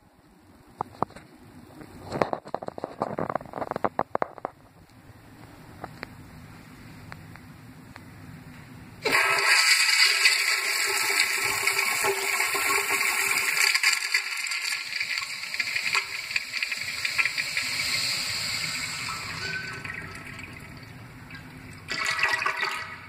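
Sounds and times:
toilet flushing: 0:09.0 - 0:23.0.

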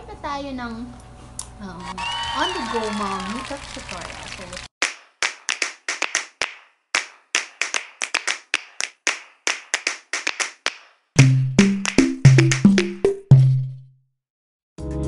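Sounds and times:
hand claps: 0:02.0 - 0:13.5
bass and percussion beat: 0:11.2 - 0:13.8.

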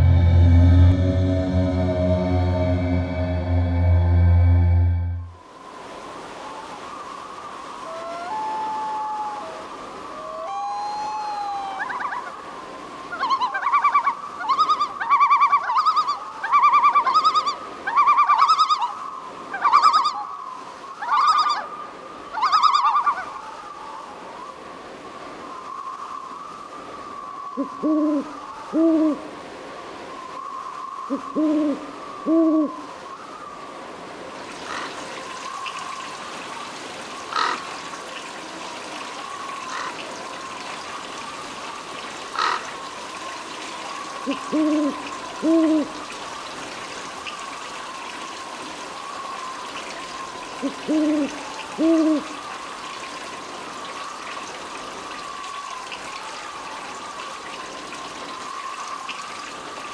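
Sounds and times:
steady high-pitched tone: 0:00.0 - 0:05.5
owl hooting: 0:27.2 - 0:29.3, 0:30.3 - 0:33.5, 0:44.2 - 0:45.9, 0:50.6 - 0:52.4.

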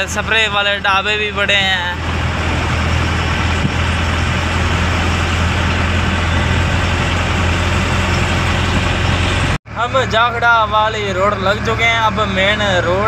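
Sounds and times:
road noise hiss: 0:00.0 - 0:12.8
truck engine drone: 0:00.0 - 0:13.0.

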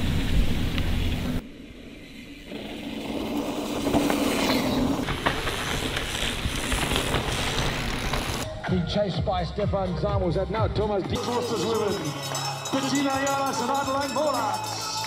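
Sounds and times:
bike tyres rushing on trail: 0:00.0 - 0:08.4
sharp bike clicks: 0:03.9 - 0:08.4.

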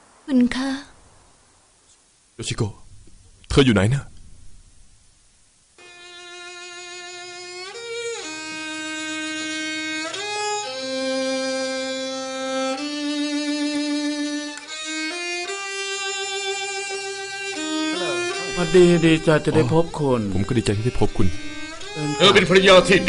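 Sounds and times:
solo violin slow melody: 0:05.8 - 0:23.0.

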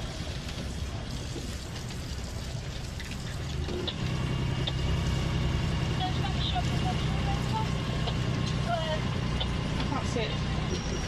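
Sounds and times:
boat engine humming: 0:00.0 - 0:11.0.

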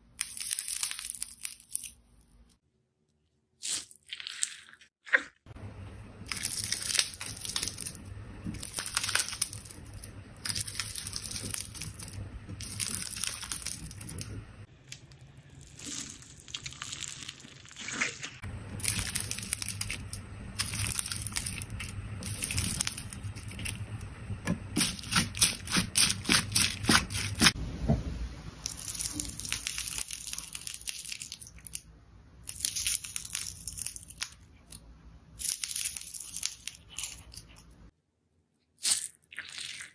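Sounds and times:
slime squishing and crackling: 0:06.2 - 0:24.0, 0:24.6 - 0:27.6, 0:28.6 - 0:34.8, 0:35.4 - 0:37.7.

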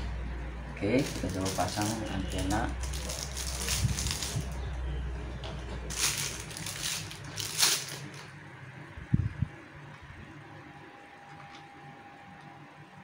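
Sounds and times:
plastic packaging crinkling: 0:00.8 - 0:04.7, 0:05.7 - 0:08.4.

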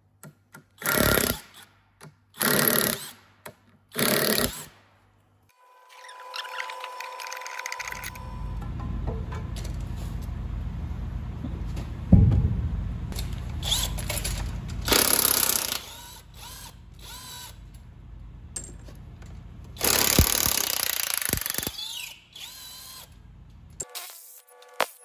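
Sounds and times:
low hum: 0:06.3 - 0:15.1
power tool running: 0:13.1 - 0:17.7, 0:19.8 - 0:23.2.

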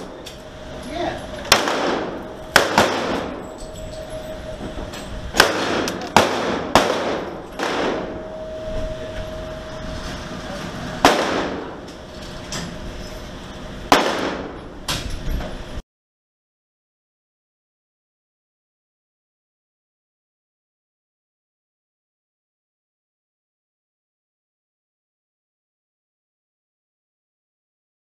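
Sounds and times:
pistol shots echoing indoors: 0:01.3 - 0:08.5, 0:11.0 - 0:11.9, 0:13.9 - 0:14.7.

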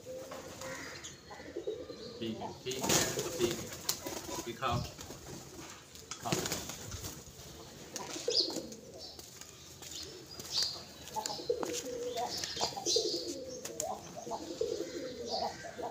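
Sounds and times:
pigeons cooing: 0:00.0 - 0:15.9
wings fluttering: 0:02.7 - 0:08.8
pigeon chirps: 0:10.0 - 0:15.9.

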